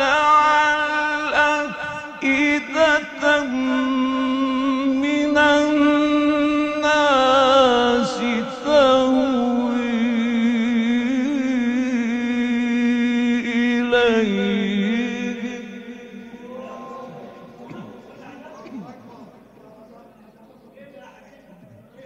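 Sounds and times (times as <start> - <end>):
man reciting melodically: 0.0 - 22.0.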